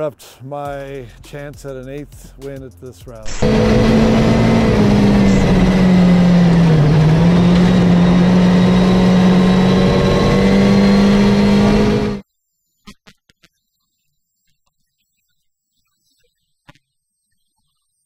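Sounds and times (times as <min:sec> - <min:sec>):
car engine at high revs: 0:03.2 - 0:12.2
tyre and road noise: 0:03.2 - 0:12.2.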